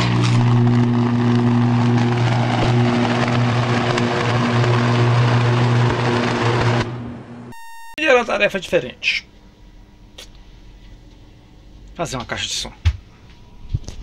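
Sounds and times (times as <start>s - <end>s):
electrical arc buzzing: 7.6s - 8.0s.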